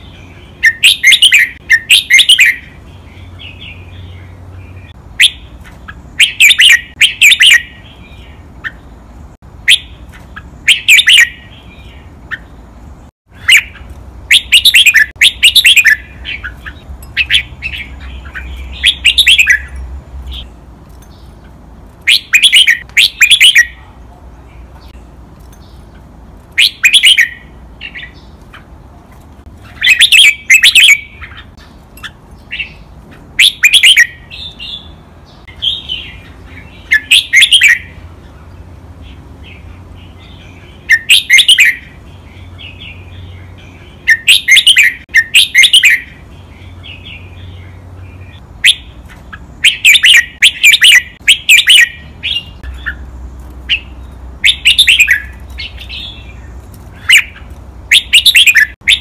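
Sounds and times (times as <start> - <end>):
bird singing whistled phrases: 0.6 - 2.7, 6.2 - 7.9, 10.7 - 11.6, 13.4 - 19.8, 22.1 - 23.8, 26.6 - 28.2, 29.8 - 31.3, 33.4 - 34.9, 36.8 - 37.9, 40.9 - 41.9, 44.0 - 46.1, 49.6 - 53.0, 53.7 - 56.3, 57.0 - 59.0.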